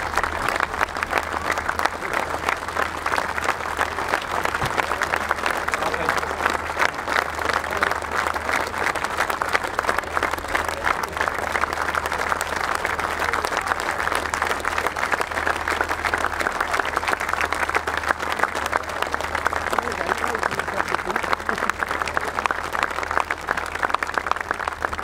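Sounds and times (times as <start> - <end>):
crowd applauding: 0.0 - 25.0.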